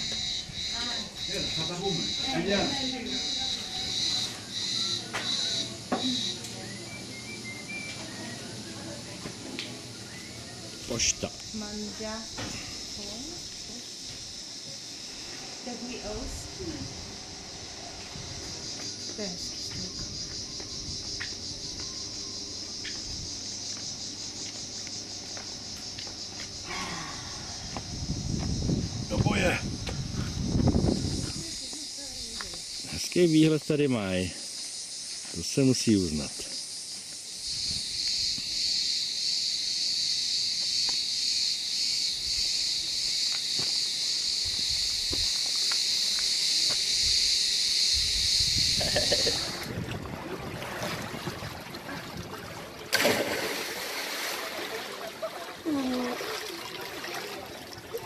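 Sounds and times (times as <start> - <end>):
cicadas buzzing: 0.0 - 50.6, 51.5 - 58.0.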